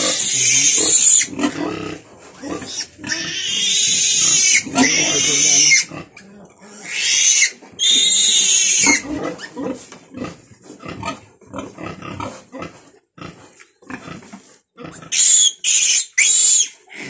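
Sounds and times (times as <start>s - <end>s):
piglet squealing: 0.0s - 1.6s, 2.5s - 9.6s, 15.1s - 17.0s
piglet grunting: 0.0s - 7.5s.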